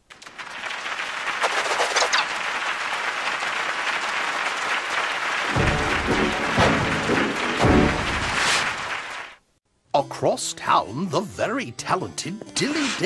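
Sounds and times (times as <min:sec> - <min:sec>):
audience applauding: 0:00.0 - 0:09.4.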